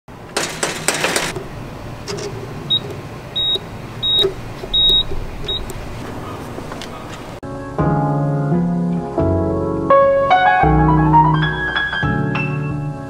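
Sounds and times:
low background noise: 0:00.1 - 0:07.4
keypad beeps: 0:02.7 - 0:05.8.

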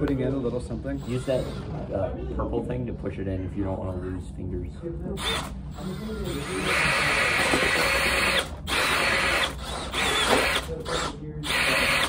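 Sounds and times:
cordless drills spinning rollers: 0:01.0 - 0:01.8, 0:05.2 - 0:12.0.

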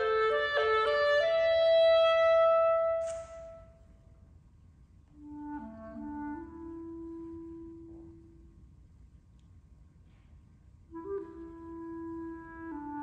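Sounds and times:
clarinet notes: 0:00.0 - 0:03.8, 0:05.1 - 0:08.6, 0:10.8 - 0:13.0
brief hiss: 0:03.0 - 0:03.7.

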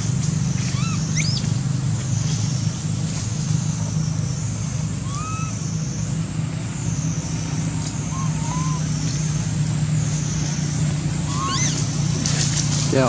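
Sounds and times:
vehicle engine rumble: 0:00.0 - 0:13.0.

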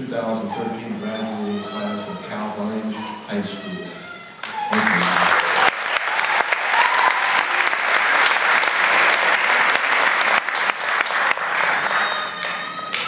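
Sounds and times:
crowd applauding: 0:04.4 - 0:13.0.

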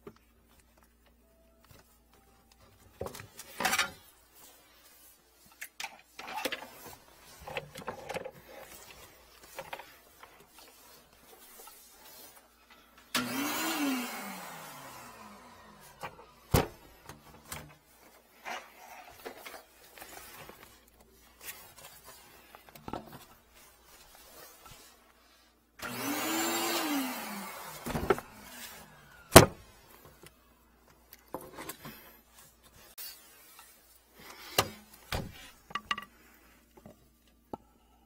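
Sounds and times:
small electric motor whine: 0:13.1 - 0:16.0, 0:25.8 - 0:29.4.

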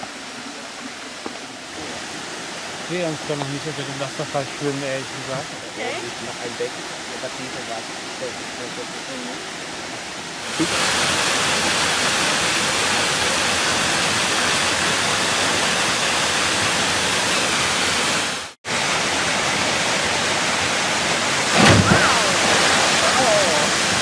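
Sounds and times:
waterfall rushing over rocks: 0:00.0 - 0:24.0
person splashing into pool: 0:21.5 - 0:23.9.

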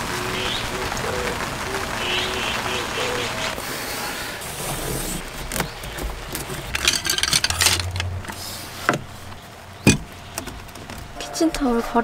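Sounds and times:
wicker and utensils knocking: 0:06.4 - 0:08.0.

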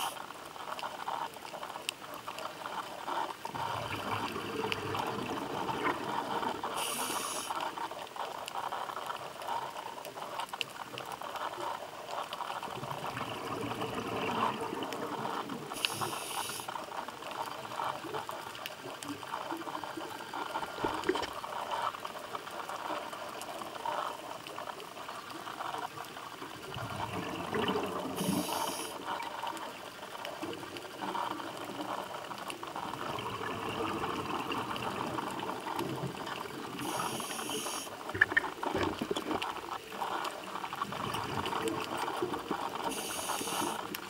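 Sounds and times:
diver inhaling through regulator: 0:06.8 - 0:07.6, 0:36.8 - 0:38.0, 0:42.9 - 0:43.8.

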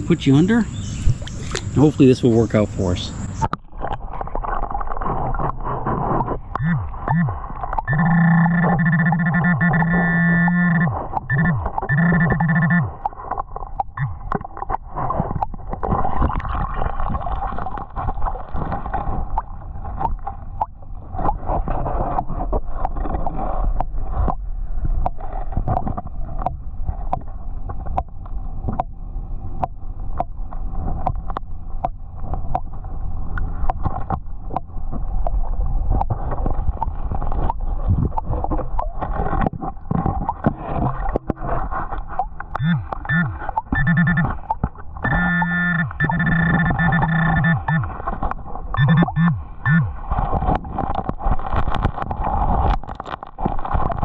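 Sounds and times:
muffled underwater water gurgling: 0:00.0 - 0:54.0
gravel and stones clicking: 0:50.1 - 0:54.0.

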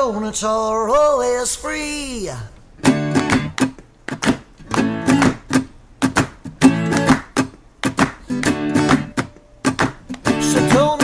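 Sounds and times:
guitar strumming chords: 0:02.8 - 0:11.0
person singing: 0:10.3 - 0:11.0.

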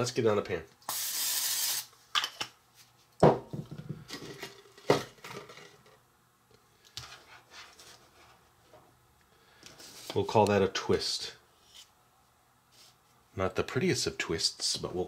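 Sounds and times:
short hiss: 0:00.9 - 0:01.9.

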